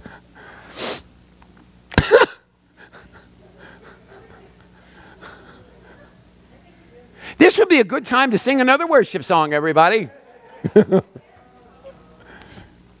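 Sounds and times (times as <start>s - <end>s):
faint murmuring: 2.8s - 7.3s, 10.0s - 12.8s.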